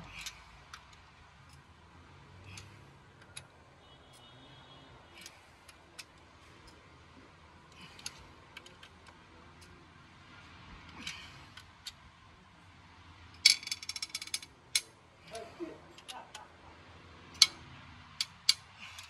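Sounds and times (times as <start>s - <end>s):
ratchet wrench clicking: 0.1s - 1.6s, 13.4s - 14.9s, 17.3s - 19.0s
metal clicks and clinks: 13.4s - 16.4s, 17.3s - 19.0s.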